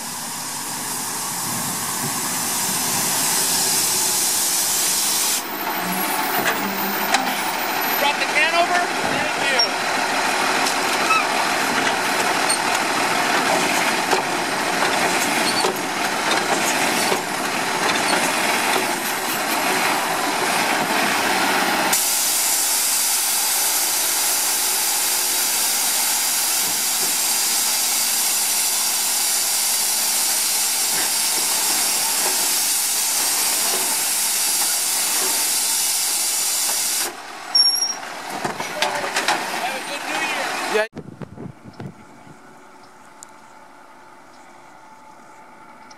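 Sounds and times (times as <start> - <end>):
garbage truck engine running: 0.0 - 45.9
hydraulic arm lifting cart: 1.6 - 8.6, 9.3 - 28.9.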